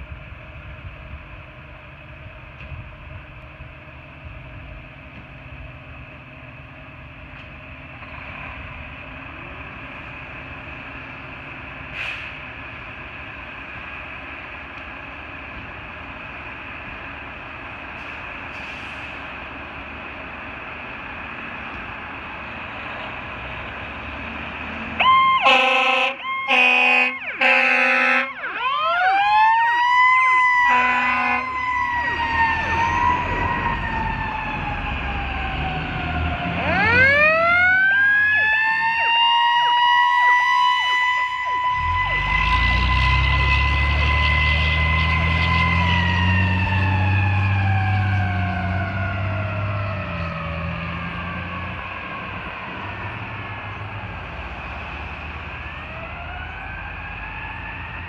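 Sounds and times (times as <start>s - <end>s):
diesel engine pulling away: 0.0s - 58.0s
air horn blasts: 25.4s - 28.4s, 30.7s - 31.5s.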